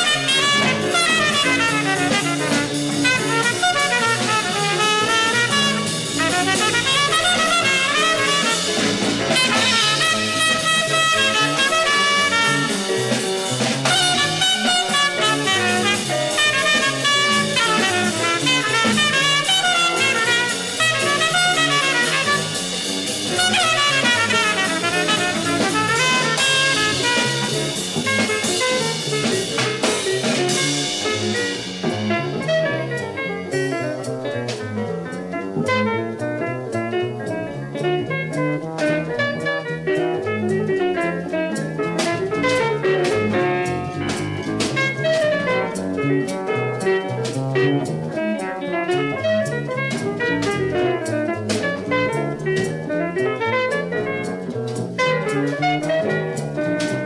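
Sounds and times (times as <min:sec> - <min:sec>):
bebop jazz band playing: 0:00.0 - 0:57.0.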